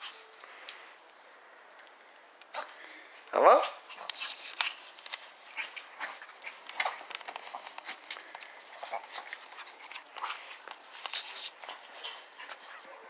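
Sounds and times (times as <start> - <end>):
dogs panting and snuffling: 0.0 - 1.3, 2.4 - 13.0
small paws crunching in snow: 2.5 - 12.9.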